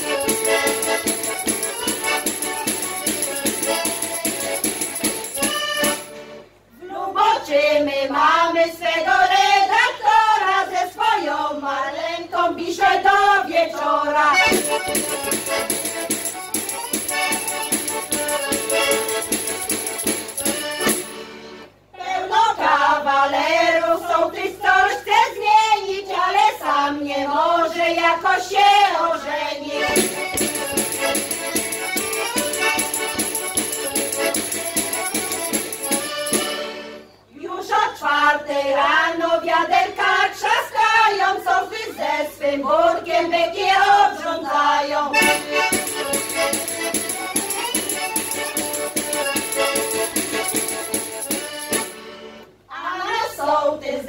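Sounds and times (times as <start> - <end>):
accordion: 0.0 - 6.7, 8.1 - 25.0, 25.8 - 37.3, 41.0 - 52.7
women singing folk song: 6.8 - 16.3, 21.9 - 36.5, 37.3 - 51.9, 52.7 - 54.0.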